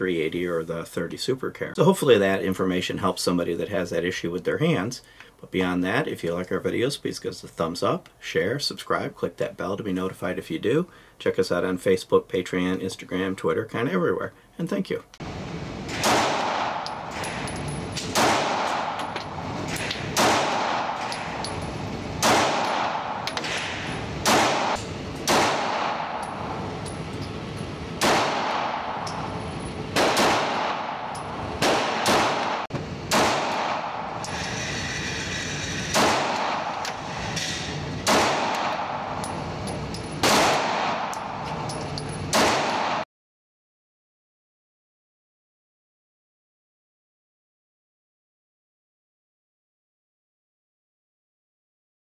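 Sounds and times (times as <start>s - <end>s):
pistol shots echoing indoors: 15.9s - 21.4s, 22.2s - 26.6s, 28.0s - 34.2s, 35.9s - 37.0s, 38.0s - 39.2s, 40.2s - 41.4s, 42.3s - 43.0s.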